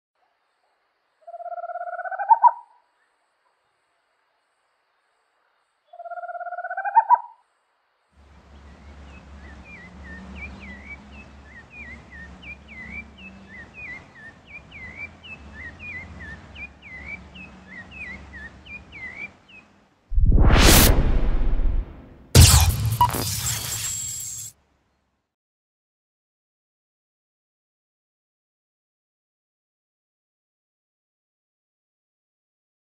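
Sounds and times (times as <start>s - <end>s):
short rising tone: 20.1s - 24.5s.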